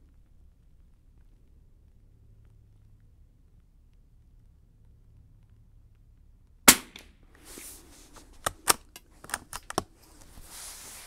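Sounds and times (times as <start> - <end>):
rifle shot: 6.7 - 7.1.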